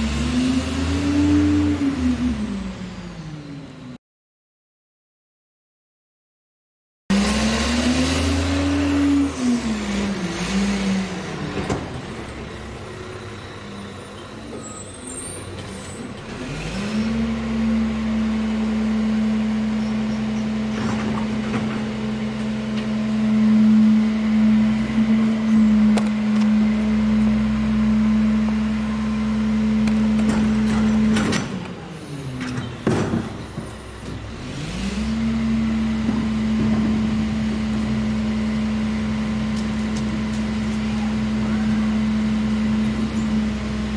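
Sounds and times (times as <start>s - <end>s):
garbage truck diesel engine revving: 7.1s - 13.1s, 15.8s - 32.4s, 33.6s - 43.9s.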